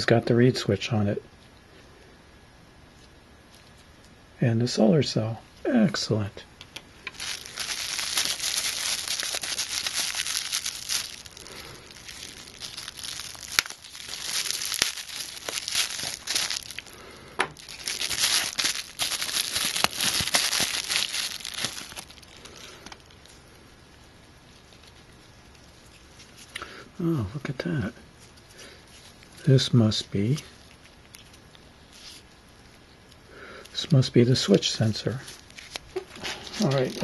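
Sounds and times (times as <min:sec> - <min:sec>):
bubble bag crinkling: 0:07.0 - 0:26.6, 0:28.1 - 0:33.8, 0:35.1 - 0:37.0.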